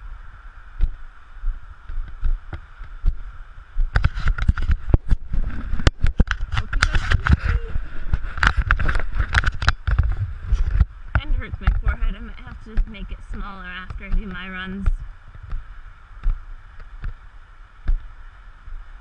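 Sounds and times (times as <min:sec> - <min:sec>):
wind on microphone: 0:00.0 - 0:19.0
hand handling camera: 0:04.0 - 0:10.8.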